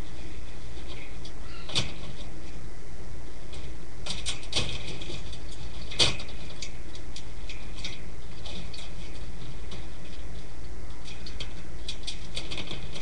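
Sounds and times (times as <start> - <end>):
steady low hum: 0.0 - 13.0
faint high squeaks: 1.0 - 2.0
small clicks in bedding: 3.5 - 13.0.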